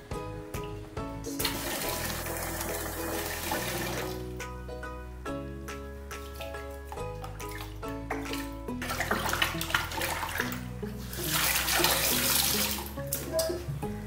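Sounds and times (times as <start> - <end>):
water sloshing in a steel bowl: 6.2 - 13.2.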